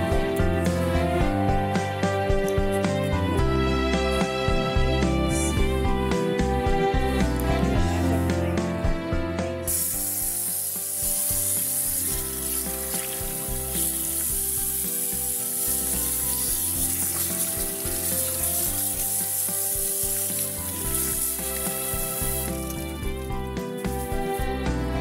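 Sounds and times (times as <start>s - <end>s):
background music: 0.0s - 25.0s
tap water running into metal pot: 9.7s - 24.2s.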